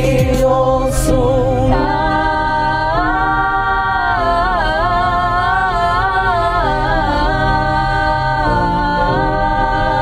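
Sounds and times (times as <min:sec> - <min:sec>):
women singing a cappella harmony: 0:00.0 - 0:10.0.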